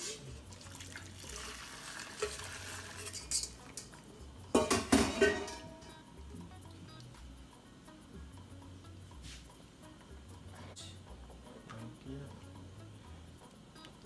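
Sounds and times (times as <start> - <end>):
water poured through strainer: 0.0 - 3.8
spoon scraping mesh strainer: 1.9 - 3.9
spoon knocking against pot: 4.5 - 5.9.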